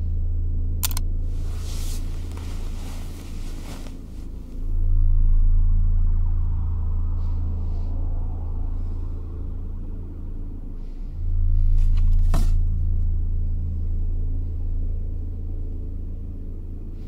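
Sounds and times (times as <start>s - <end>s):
deep rumbling drone: 0.0s - 17.0s
soft rustle: 0.9s - 4.8s.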